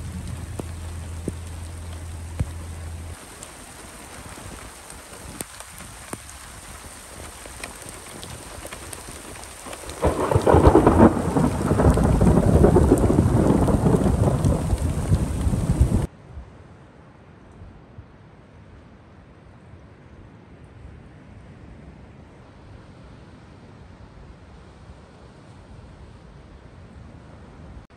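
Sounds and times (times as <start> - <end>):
rain drop ticks: 0.0 - 16.1
steady rain hissing: 0.0 - 16.1
thunder rumbling: 0.0 - 16.1.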